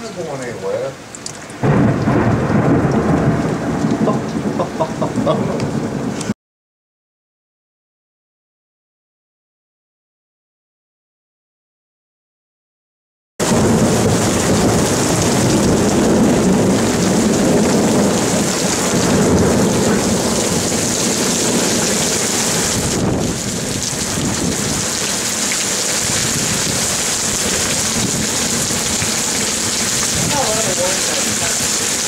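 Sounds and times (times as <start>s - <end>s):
torrential rain pouring: 0.0s - 6.4s, 13.4s - 32.0s
low rumble of thunder: 1.6s - 6.2s, 13.4s - 25.0s, 26.0s - 31.8s.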